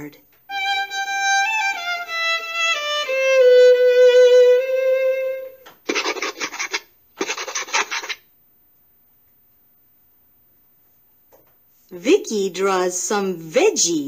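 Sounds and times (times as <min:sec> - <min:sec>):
marker drawing strokes: 0:05.9 - 0:08.2.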